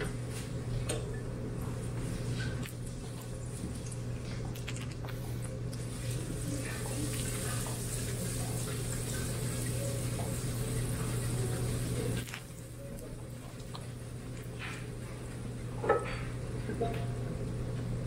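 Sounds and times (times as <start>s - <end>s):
low steady hum: 0.0s - 18.0s
omelette sizzling in a frying pan: 5.9s - 12.3s.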